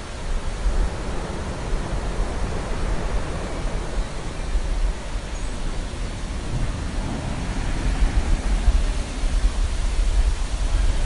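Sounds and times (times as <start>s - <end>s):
surf rushing: 6.0s - 11.0s.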